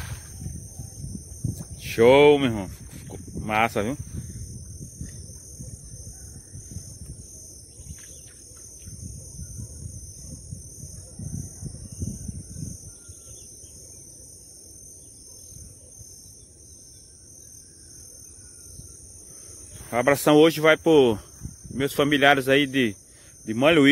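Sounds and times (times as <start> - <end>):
wind rumbling on microphone: 0.0 - 13.4, 20.7 - 22.5
insects chirring: 0.0 - 23.9.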